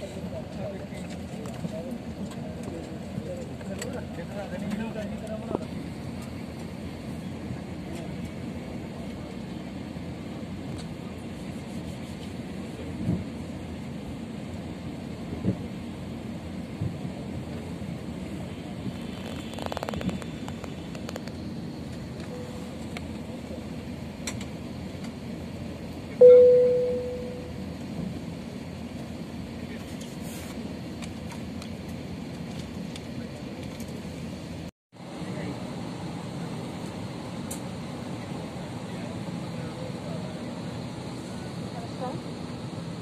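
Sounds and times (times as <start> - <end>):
airplane cabin hum: 0.0 - 43.0
low engine rumble: 0.0 - 43.0
electronic cabin chime: 22.2 - 22.9, 26.2 - 27.7.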